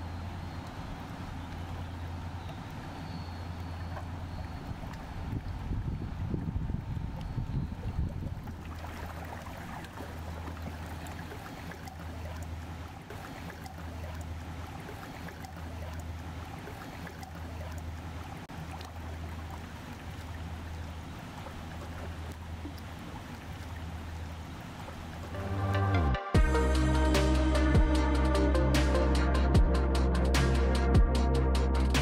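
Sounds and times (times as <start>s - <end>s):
ship diesel engine drone: 0.0s - 8.3s, 10.1s - 32.0s
water washing: 0.0s - 25.4s.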